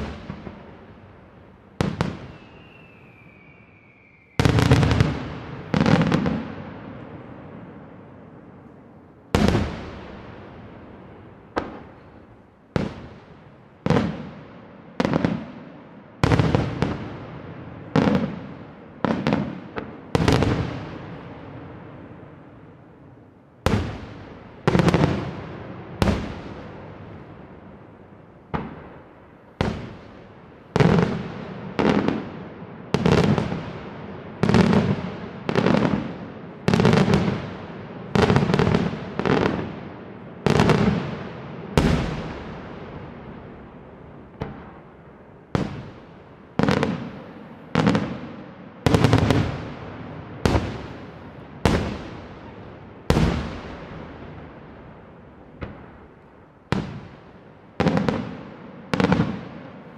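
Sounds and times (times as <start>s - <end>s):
whistle falling in pitch: 2.3s - 4.5s.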